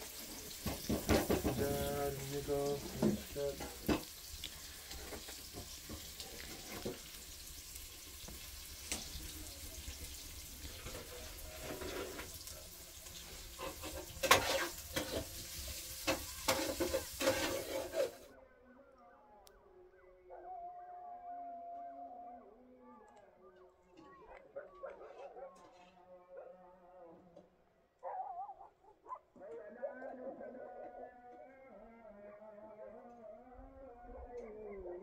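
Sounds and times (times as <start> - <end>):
steady hissing: 0.0 - 18.3
crackles and clicks: 1.5 - 18.2.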